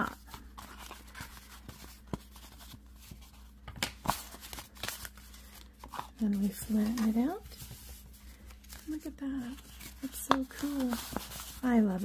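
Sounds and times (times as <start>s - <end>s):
crumpled paper rustling: 0.0s - 12.0s
sharp paper crackles: 3.8s - 12.0s.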